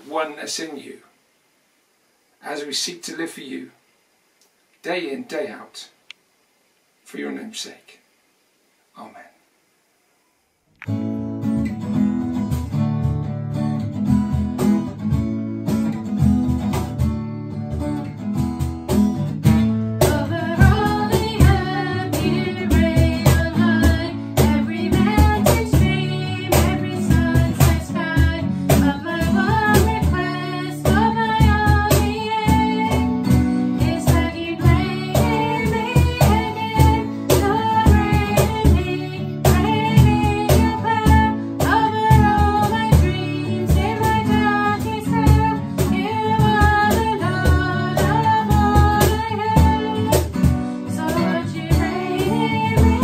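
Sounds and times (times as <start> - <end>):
acoustic guitar strumming: 10.8 - 53.0
woman and girl singing: 20.0 - 53.0.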